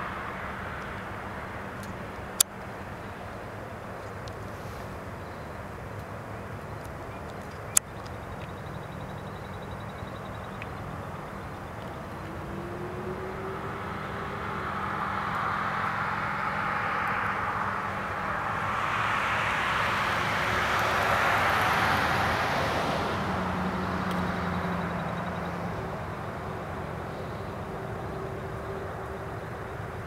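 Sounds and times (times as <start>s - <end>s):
vehicle passing: 8.0s - 30.0s.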